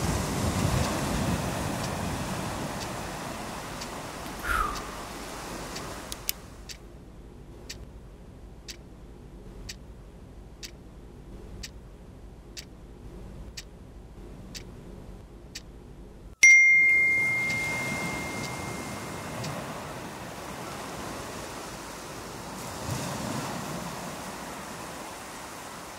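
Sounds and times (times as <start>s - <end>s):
clock ticking: 0.0s - 5.0s, 5.7s - 6.9s, 7.6s - 7.9s, 8.6s - 8.9s, 9.6s - 9.9s, 10.6s - 10.9s, 11.5s - 12.8s, 13.4s - 13.8s, 14.4s - 15.8s, 16.9s - 19.6s
short falling tone: 16.4s - 18.9s
loud bell-like ding: 16.4s - 19.2s.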